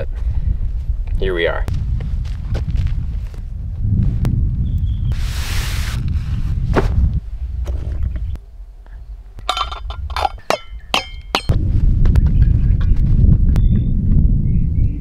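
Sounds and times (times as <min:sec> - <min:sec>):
wind rumbling on microphone: 0:00.0 - 0:15.0
metal cookware clinking: 0:09.5 - 0:11.5.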